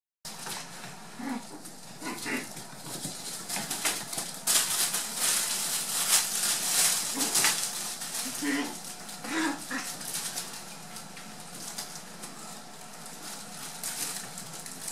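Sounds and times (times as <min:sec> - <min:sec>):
puppy growling: 0:01.1 - 0:04.2, 0:06.9 - 0:10.6
scratchy rustling and clicking: 0:01.5 - 0:14.9.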